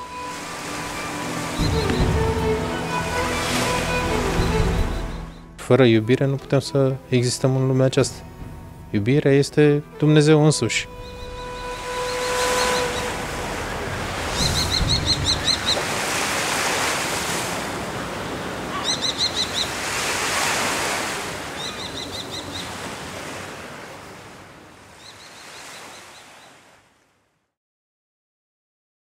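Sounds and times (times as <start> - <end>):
sea surf washing in: 0.0 - 5.3, 11.3 - 26.8
bird calling in high notes: 0.0 - 5.6, 9.9 - 16.0, 18.7 - 20.8, 21.5 - 22.8.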